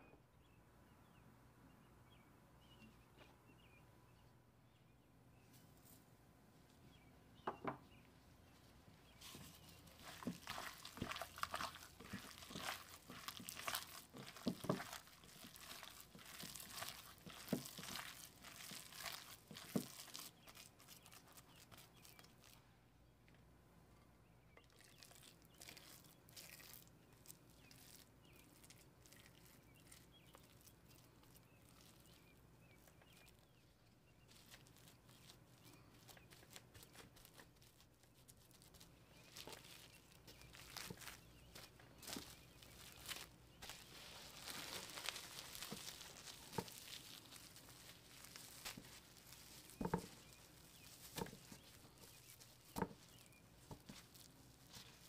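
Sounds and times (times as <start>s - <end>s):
plastic glove crinkling: 8.5s - 22.6s, 24.6s - 55.0s
wet squishing of kneaded meat: 9.0s - 22.7s, 24.3s - 55.0s
meat patted on plastic wrap: 9.2s - 22.6s, 24.6s - 55.0s.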